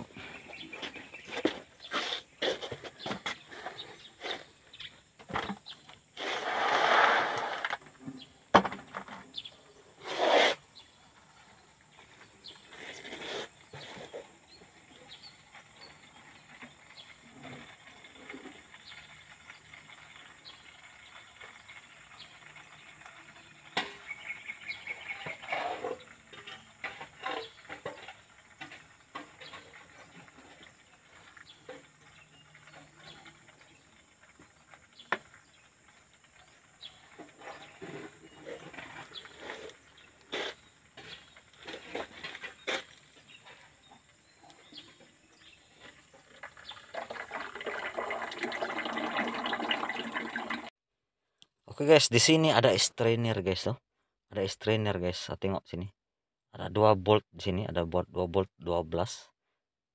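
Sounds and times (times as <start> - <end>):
oil trickling into a plastic bucket: 15.6 - 40.0, 45.3 - 50.7.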